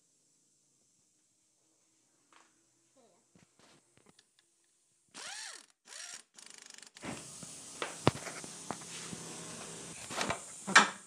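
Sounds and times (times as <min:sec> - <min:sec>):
ratchet clicking: 0:05.2 - 0:07.0.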